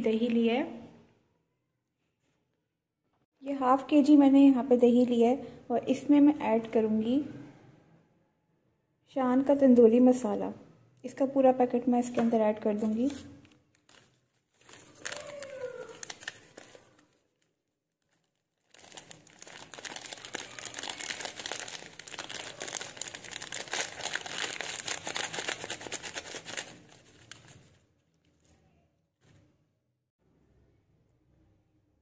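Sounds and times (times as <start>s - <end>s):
foil packet crinkling: 12.8s - 28.1s.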